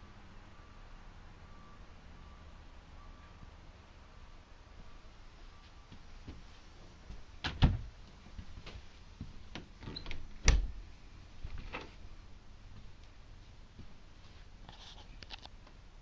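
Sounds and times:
cabinet doors thumping shut: 0:07.4 - 0:07.9.

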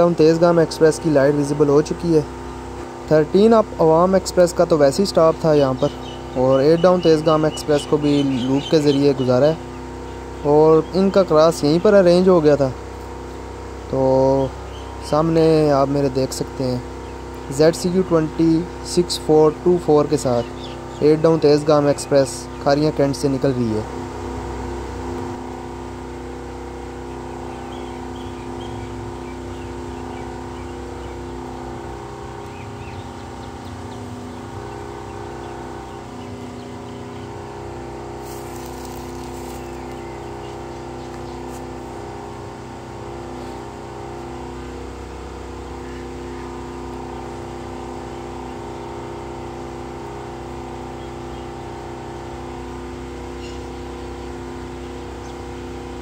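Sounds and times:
diesel locomotive engine drone: 0:00.0 - 0:56.0.

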